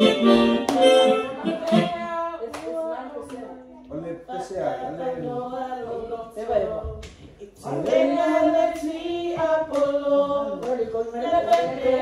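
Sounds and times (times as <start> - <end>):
electronic keyboard chords: 0.0 - 1.7
group of people singing: 0.0 - 12.0
hand claps: 0.4 - 1.9, 9.7 - 12.0.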